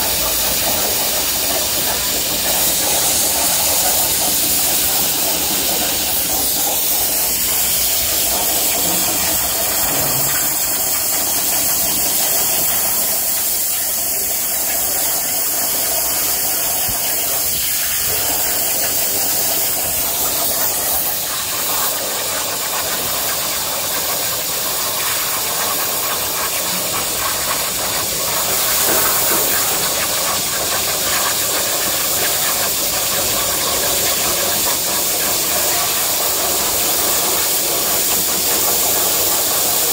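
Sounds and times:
cutting torch hissing through steel: 0:00.0 - 0:39.9.

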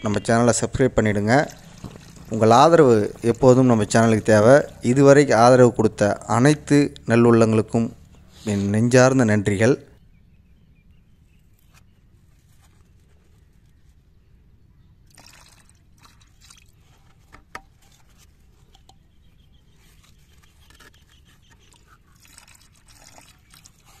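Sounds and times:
liquid trickling into bucket: 0:01.0 - 0:04.9, 0:15.0 - 0:18.9, 0:21.4 - 0:24.0
rustling and scraping of plastic: 0:11.6 - 0:14.1, 0:16.7 - 0:24.0.

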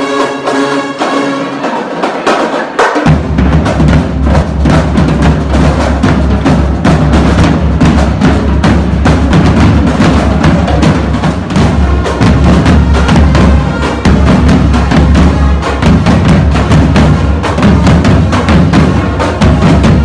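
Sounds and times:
brass holding chords: 0:00.0 - 0:01.8
drumline fast beat: 0:00.0 - 0:20.0.

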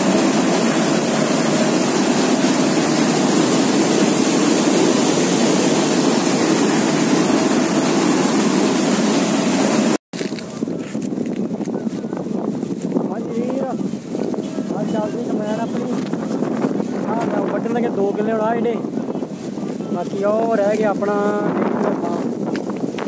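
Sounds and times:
combine harvester running: 0:00.0 - 0:10.7.

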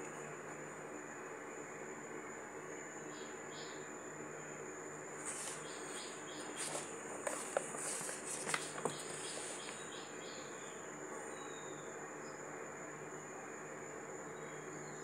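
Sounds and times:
brief rustles: 0:05.2 - 0:09.8.

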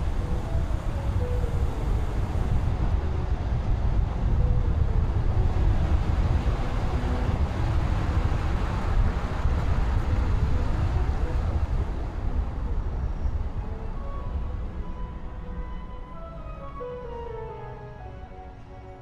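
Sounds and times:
car road and wind noise: 0:00.0 - 0:19.0.

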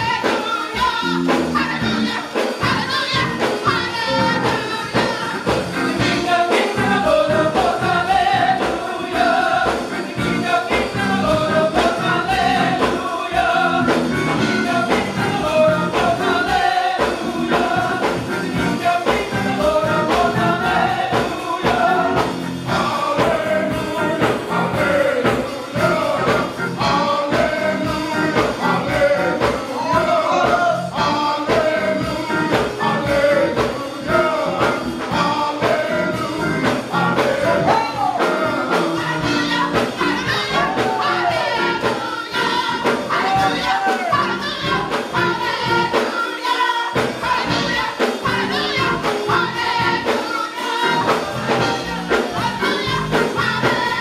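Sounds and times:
band with driving beat: 0:00.0 - 0:54.0
gospel choir singing: 0:00.0 - 0:54.0.

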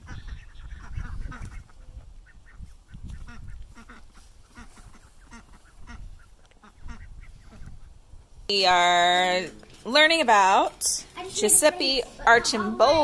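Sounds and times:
poultry calling: 0:00.0 - 0:07.9.

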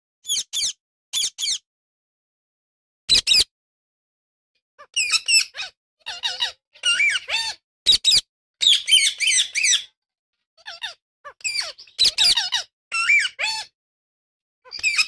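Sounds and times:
parakeets chattering: 0:05.0 - 0:10.0, 0:10.7 - 0:13.7, 0:14.7 - 0:15.0.

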